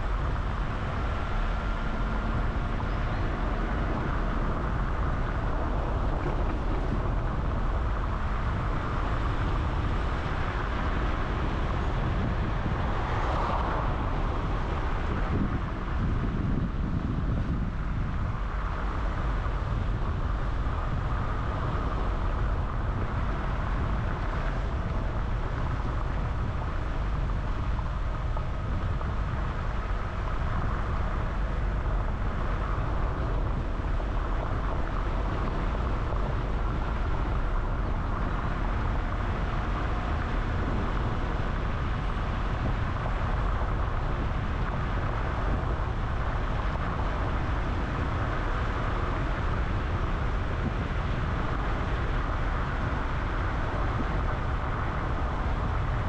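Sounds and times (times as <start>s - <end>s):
car engine and tyres on road: 0.0s - 56.0s.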